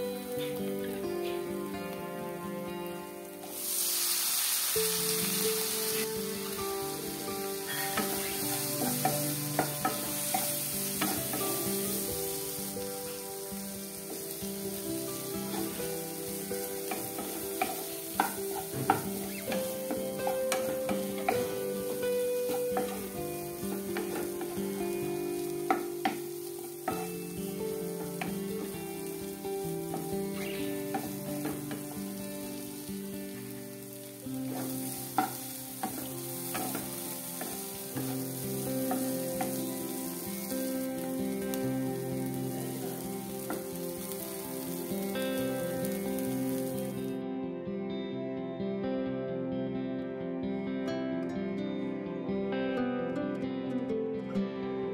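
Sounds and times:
potatoes sizzling in hot oil: 0:00.0 - 0:02.3, 0:02.9 - 0:47.2
wooden spatula scraping a pan: 0:34.5 - 0:38.2.

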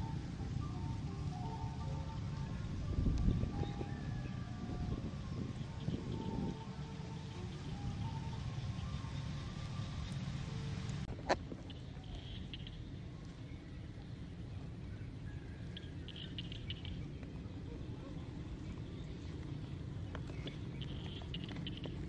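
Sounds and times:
low outdoor rumble: 0:00.0 - 0:22.0
rapid high-pitched chirping: 0:11.7 - 0:13.0, 0:15.8 - 0:17.1, 0:20.6 - 0:22.0.

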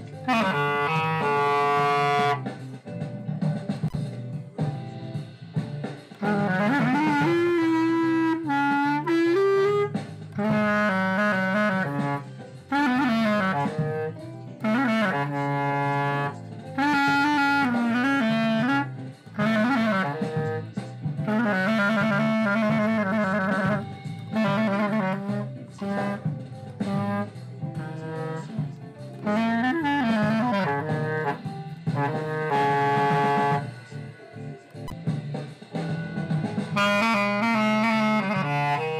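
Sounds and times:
clarinet melody: 0:00.0 - 0:02.7, 0:06.1 - 0:38.9.

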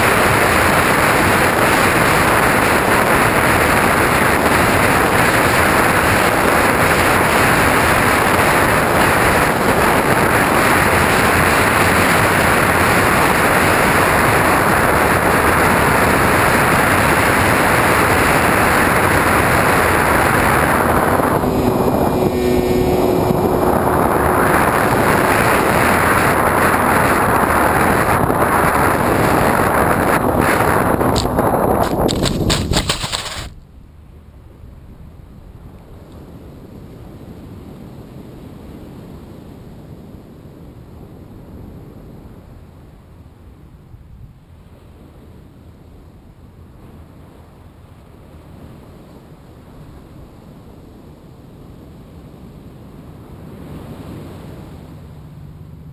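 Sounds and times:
model plane propeller and motor: 0:00.0 - 0:33.5
steady hum: 0:00.0 - 0:34.1, 0:51.5 - 0:55.9
wind rushing over microphone: 0:00.0 - 0:55.9.

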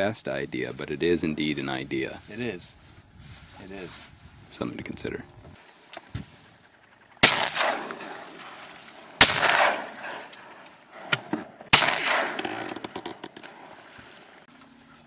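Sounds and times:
shotgun shots: 0:07.2 - 0:14.0.

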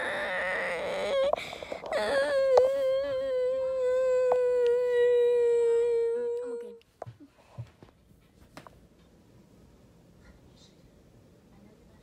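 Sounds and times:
boy humming long note: 0:00.0 - 0:06.8.

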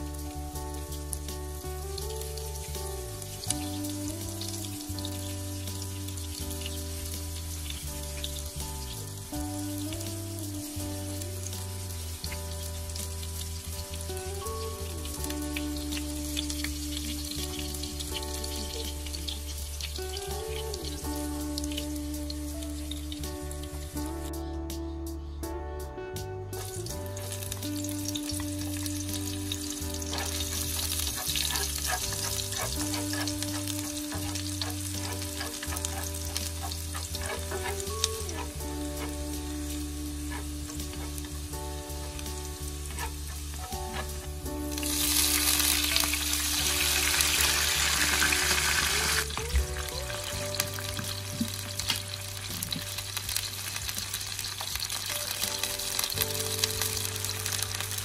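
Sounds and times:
shallots sizzling in oil: 0:00.0 - 0:24.6, 0:26.6 - 0:58.0
wooden spatula stirring: 0:29.7 - 0:39.2.

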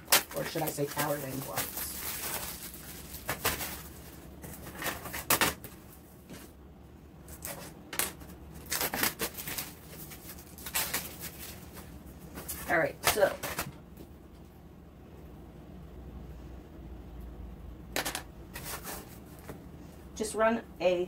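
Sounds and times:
plastic packaging crinkling: 0:00.0 - 0:06.0, 0:07.3 - 0:13.7.

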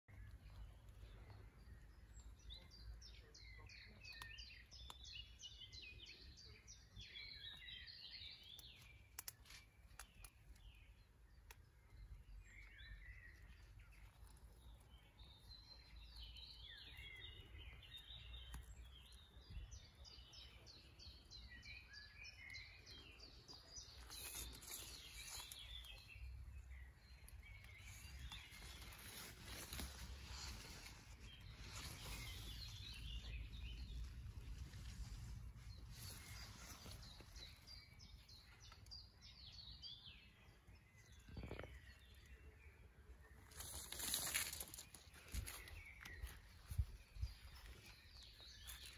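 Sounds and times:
songbird singing faintly: 0:00.0 - 0:48.9
rustling: 0:23.4 - 0:38.9, 0:43.4 - 0:48.9.

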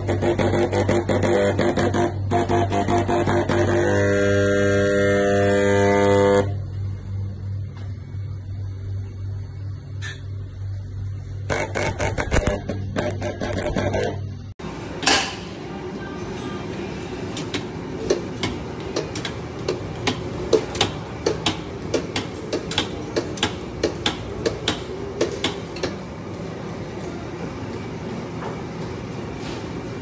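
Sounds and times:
meat slicer humming and clacking: 0:00.0 - 0:06.8, 0:16.6 - 0:30.0.

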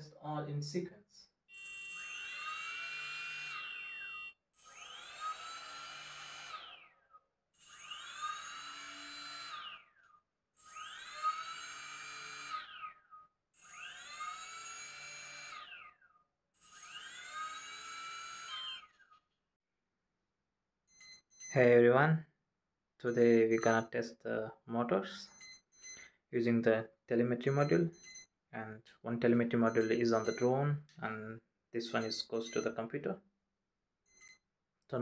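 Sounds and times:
drone motors whining: 0:01.5 - 0:19.2, 0:23.1 - 0:23.8, 0:29.7 - 0:30.5, 0:31.8 - 0:32.7
high steady tone: 0:23.1 - 0:23.9, 0:27.4 - 0:28.3, 0:29.7 - 0:30.5, 0:31.8 - 0:32.8.

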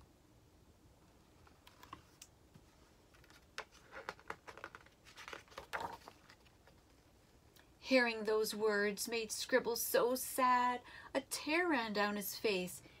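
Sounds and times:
book pages rustling: 0:01.1 - 0:07.4.

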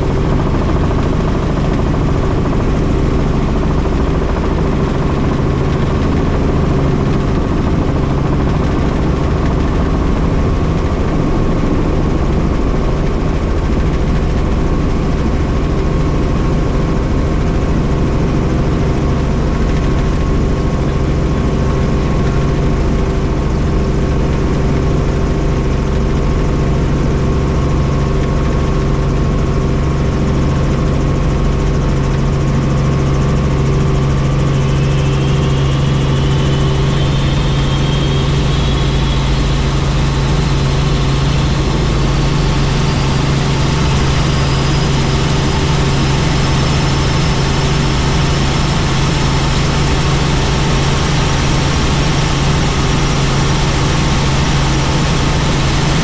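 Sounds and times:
helicopter engine and rotor drone: 0:00.0 - 0:56.0
faint high whine rising in pitch: 0:33.0 - 0:56.0.

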